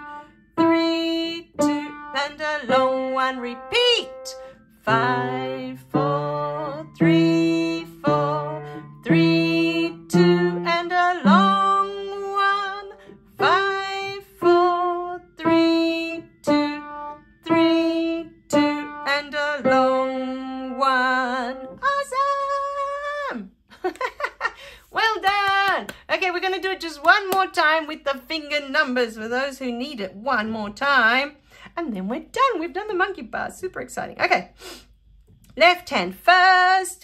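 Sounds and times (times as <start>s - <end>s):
piano single-note melody: 0.0s - 11.9s, 12.6s - 21.7s
person singing along: 0.0s - 23.5s.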